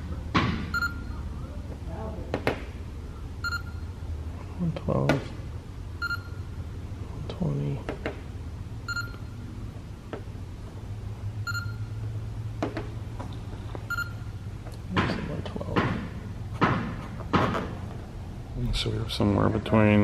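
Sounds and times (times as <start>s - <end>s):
gauge beeping: 0.0s - 1.4s, 3.4s - 4.1s, 6.0s - 6.6s, 8.8s - 9.6s, 11.4s - 12.2s, 13.8s - 14.5s.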